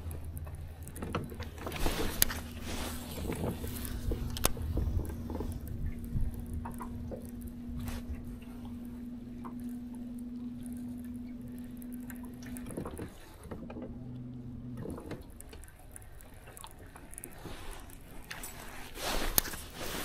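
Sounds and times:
water lapping against boat hull: 0.0s - 20.0s.

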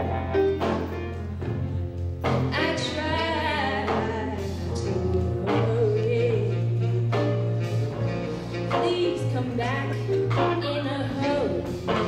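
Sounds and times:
blues band playing: 0.0s - 12.0s
woman singing: 2.5s - 8.1s, 8.7s - 12.0s.

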